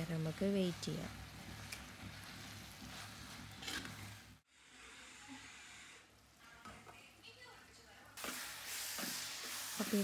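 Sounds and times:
faint sizzle: 0:00.0 - 0:10.0
spoon stirring in a pot: 0:00.2 - 0:04.4
spoon scraping: 0:01.6 - 0:04.3
steaming pot hiss: 0:08.2 - 0:10.0.

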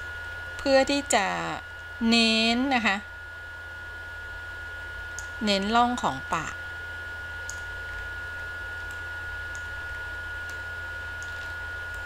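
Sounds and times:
electrical hum and hiss: 0:00.0 - 0:12.0
faint high whine: 0:00.0 - 0:12.0
computer mouse clicks: 0:11.2 - 0:12.0.

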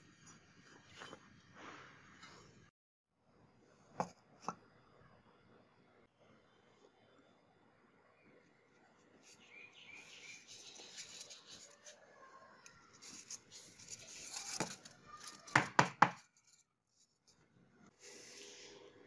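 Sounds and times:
paper rustling: 0:12.9 - 0:15.5.

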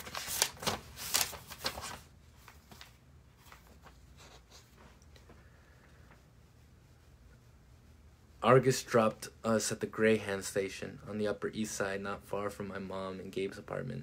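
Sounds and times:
book pages rustling: 0:00.0 - 0:05.4.

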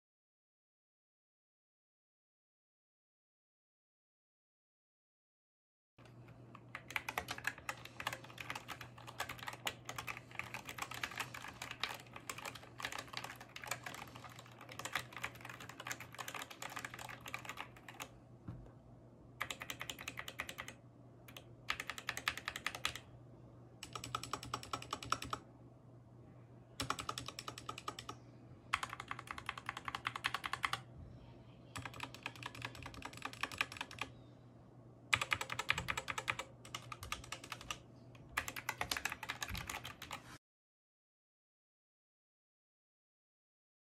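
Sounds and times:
mechanical keyboard typing: 0:06.0 - 0:18.1, 0:19.4 - 0:23.0, 0:23.8 - 0:25.4, 0:26.8 - 0:30.8, 0:31.8 - 0:34.1, 0:35.1 - 0:40.2.

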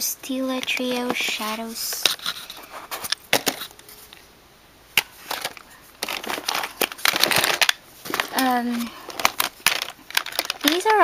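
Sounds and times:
makeup containers clicking: 0:05.0 - 0:08.4, 0:09.1 - 0:11.0.

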